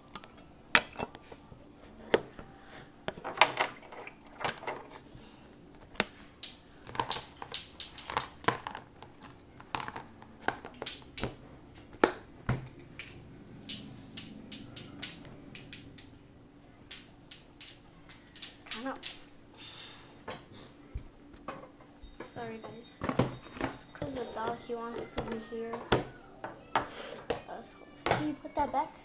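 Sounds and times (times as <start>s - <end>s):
plastic containers clicking: 5.9s - 16.1s.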